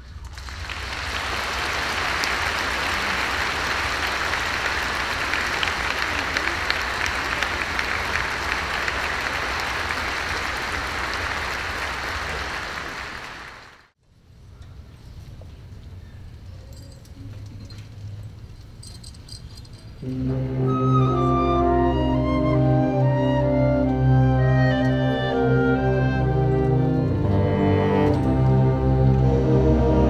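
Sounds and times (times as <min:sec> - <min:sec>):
audience applauding: 0:00.2 - 0:13.9.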